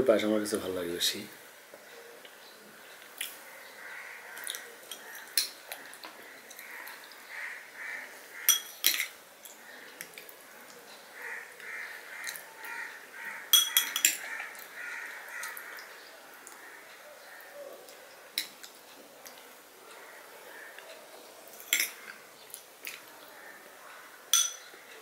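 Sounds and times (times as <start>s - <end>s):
crows cawing: 3.4s - 5.4s, 6.1s - 8.8s, 9.5s - 17.8s, 19.8s - 21.0s, 23.2s - 24.8s.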